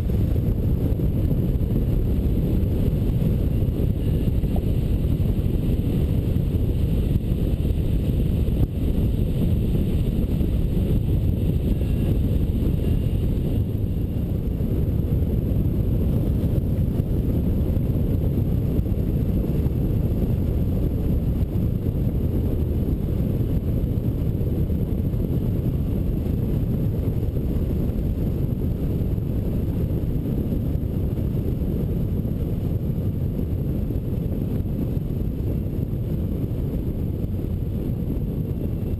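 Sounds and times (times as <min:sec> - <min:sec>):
wind rush on microphone: 0:00.0 - 0:38.9.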